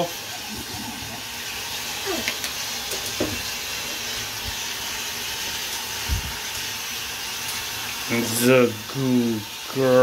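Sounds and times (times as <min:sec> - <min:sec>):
shower water running into bathtub: 0:00.0 - 0:10.0.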